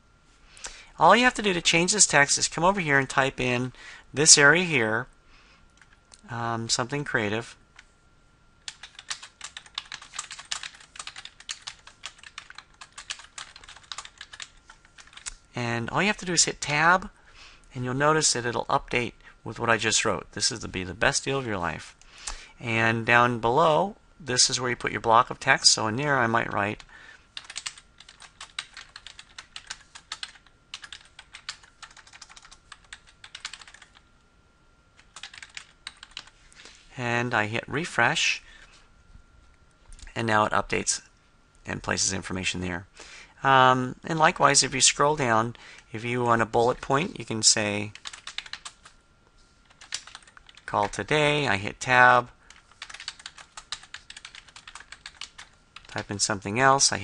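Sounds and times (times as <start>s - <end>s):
typing on keyboard: 8.6s - 15.4s, 27.4s - 34.0s, 35.0s - 36.3s, 48.0s - 49.0s, 49.7s - 51.0s, 52.5s - 56.0s.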